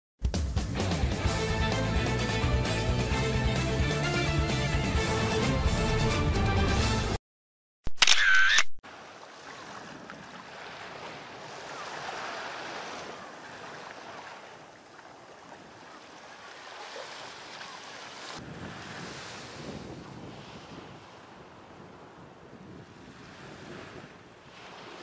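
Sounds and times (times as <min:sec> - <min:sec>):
small waves on a sandy beach: 0:08.8 - 0:25.0
wind on microphone: 0:18.4 - 0:25.0.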